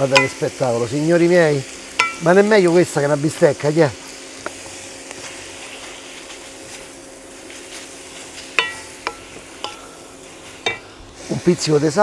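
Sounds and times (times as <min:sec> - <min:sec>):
food sizzling in oil in a wok: 0:00.0 - 0:12.0
sharp knocks on metal pan: 0:08.6 - 0:09.8, 0:10.6 - 0:10.9.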